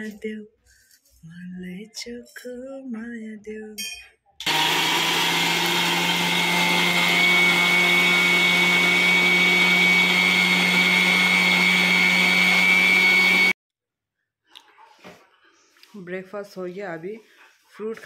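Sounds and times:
contents churning in grinder: 0:04.4 - 0:13.5
mixer grinder motor whine: 0:04.4 - 0:13.6.

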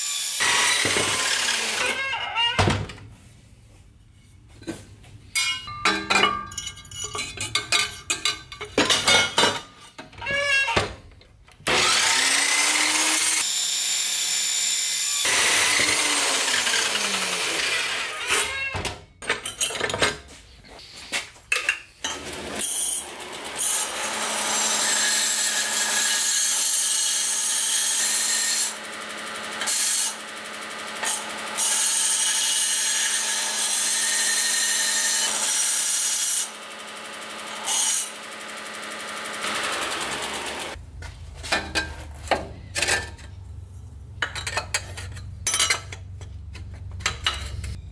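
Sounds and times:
chop saw cutting metal: 0:00.0 - 0:02.2, 0:11.6 - 0:18.6, 0:22.0 - 0:40.8
belt grinder humming: 0:00.2 - 0:02.1, 0:11.7 - 0:14.2, 0:15.2 - 0:18.4, 0:36.4 - 0:40.8.

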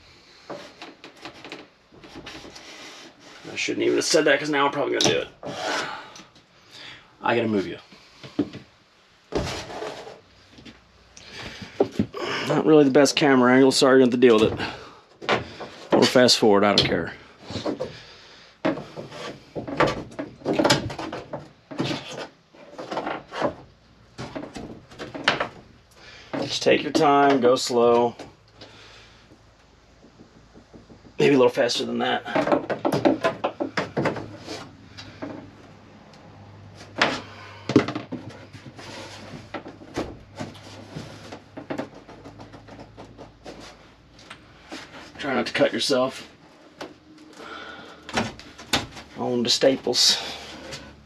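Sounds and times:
plywood creaking and cracking: 0:00.0 - 0:51.0
plywood panel being pried loose: 0:18.7 - 0:23.6.

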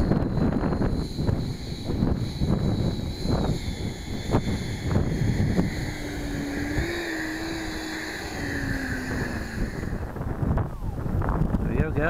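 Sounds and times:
thin steady hum: 0:00.0 - 0:12.0
wind buffeting microphone: 0:00.0 - 0:12.0.

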